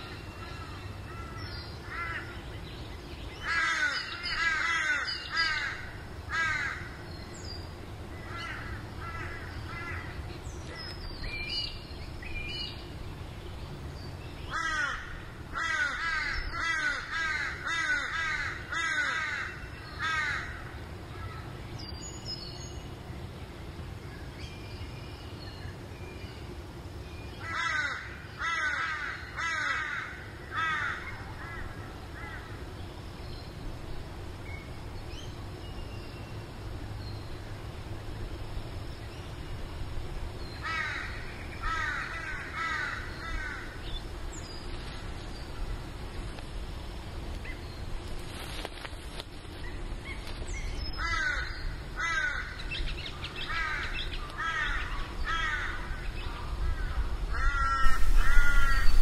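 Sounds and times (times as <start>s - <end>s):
bird cawing: 0.0s - 2.4s, 3.4s - 7.0s, 8.2s - 10.3s, 14.5s - 21.5s, 27.4s - 32.6s, 40.6s - 43.9s, 50.9s - 59.0s.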